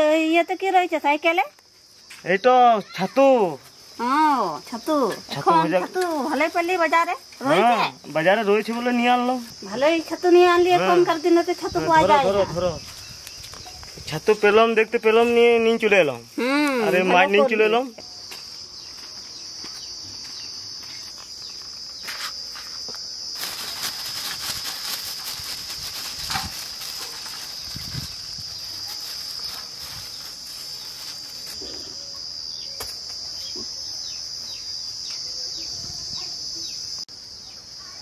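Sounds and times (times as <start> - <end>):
insects droning: 0.0 - 38.0
plastic bag crackling: 23.3 - 31.6.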